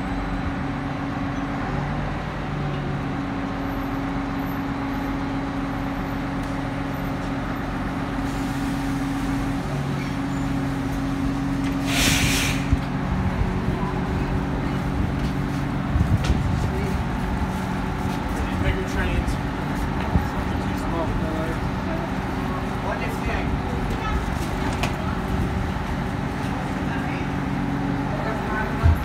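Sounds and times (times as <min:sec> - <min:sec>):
diesel railcar engine idling: 0:00.0 - 0:29.0
hiss of released air: 0:11.8 - 0:12.8.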